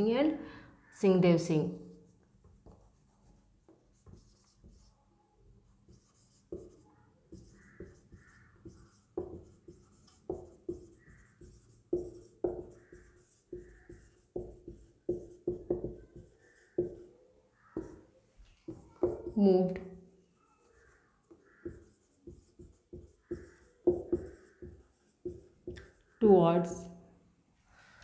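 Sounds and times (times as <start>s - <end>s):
marker writing on whiteboard: 1.9s - 26.2s
marker squeaks: 5.9s - 19.4s, 20.4s - 26.2s.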